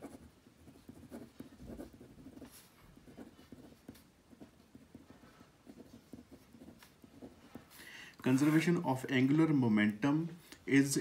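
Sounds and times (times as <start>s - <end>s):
pen scratching on paper: 0.0s - 7.8s.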